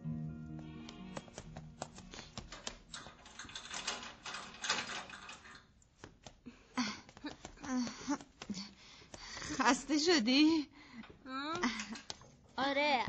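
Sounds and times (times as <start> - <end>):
rustling: 0.6 - 9.9.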